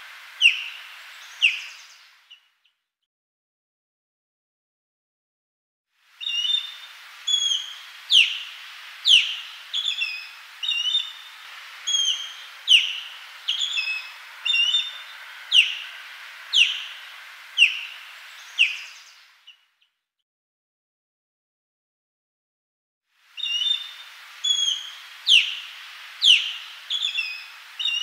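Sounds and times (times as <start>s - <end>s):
osprey whistled calls: 0.0s - 2.5s, 6.2s - 19.6s, 23.4s - 28.0s
light hiss: 0.0s - 2.6s, 6.0s - 19.7s, 23.1s - 28.0s.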